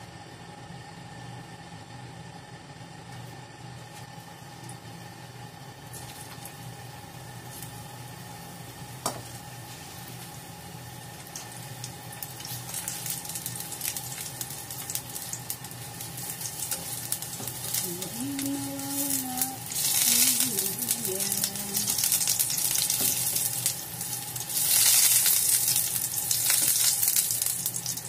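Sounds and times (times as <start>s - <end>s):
food sizzling in hot oil: 5.7s - 28.0s.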